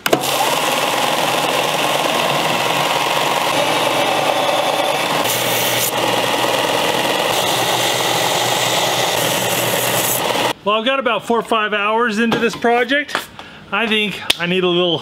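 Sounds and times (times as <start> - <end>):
belt sander grinding metal: 0.1 - 10.5.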